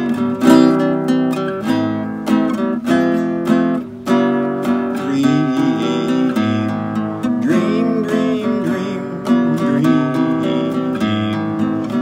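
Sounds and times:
classical guitar strummed chords: 0.0 - 12.0
man singing: 4.8 - 12.0.

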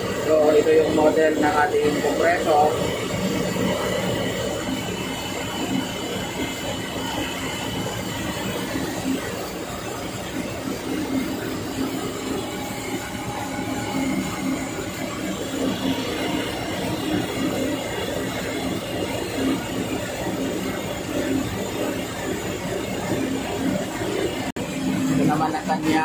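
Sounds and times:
machinery droning: 0.0 - 26.0.

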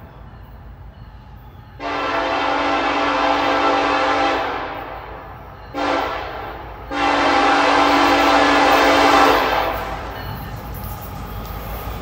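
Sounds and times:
locomotive air horn blasts: 1.8 - 10.1.

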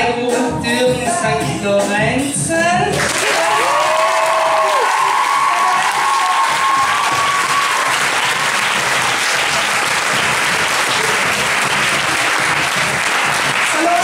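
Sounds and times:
crowd applauding: 3.0 - 14.0.

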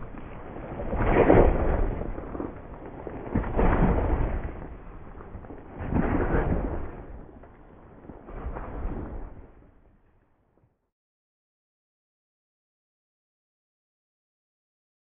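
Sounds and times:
heavy rumbling booms: 0.0 - 9.6.

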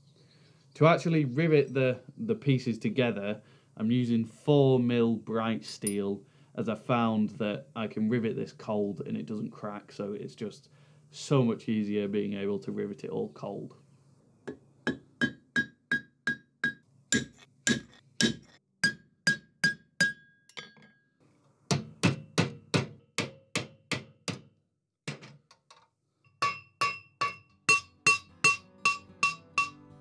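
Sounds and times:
hammer blows on steel rivets: 5.8 - 6.1, 26.3 - 29.8.

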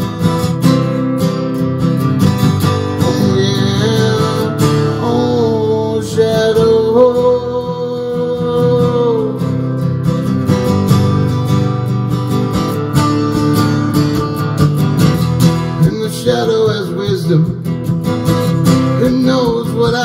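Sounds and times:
acoustic guitar strumming: 0.0 - 20.0
person singing wordlessly: 3.0 - 9.6, 15.8 - 17.6, 19.0 - 20.0.

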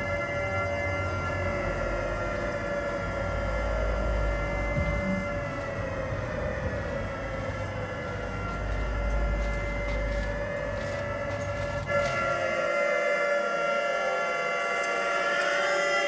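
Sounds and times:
low rumble: 0.0 - 12.4
air-raid siren wailing: 0.0 - 16.0.

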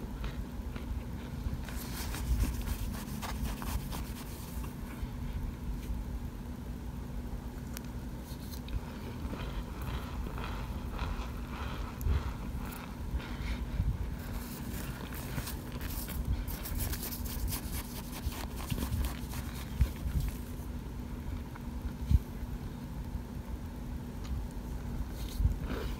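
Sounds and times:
steady low hum: 0.0 - 25.9
spoon scraping crunchy chunks: 0.2 - 4.8, 14.2 - 20.6.

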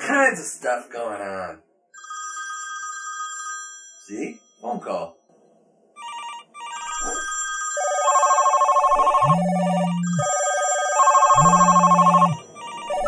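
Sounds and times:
telephones ringing: 6.0 - 13.0
low buzzing tone: 9.0 - 10.3, 11.3 - 13.0.

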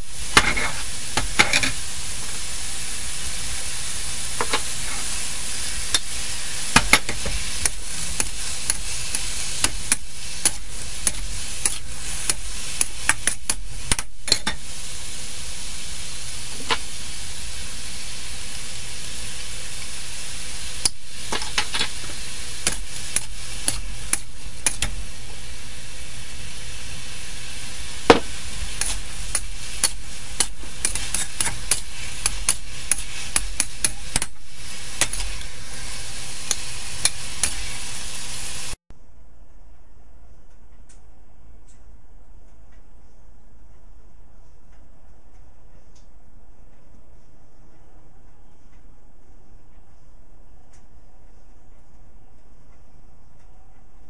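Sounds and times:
food sizzling in a wok: 0.0 - 38.8
spatula scraping a wok: 0.0 - 38.8.

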